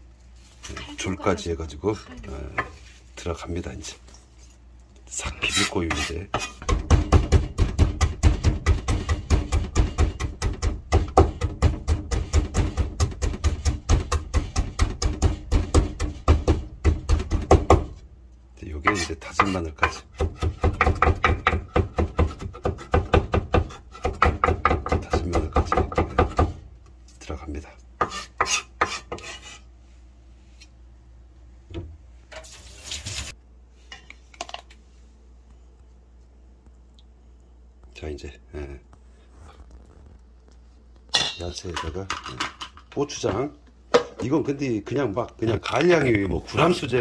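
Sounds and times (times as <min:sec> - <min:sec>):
knife chopping on wooden board: 0:05.9 - 0:18.0, 0:18.8 - 0:26.6, 0:28.0 - 0:29.4.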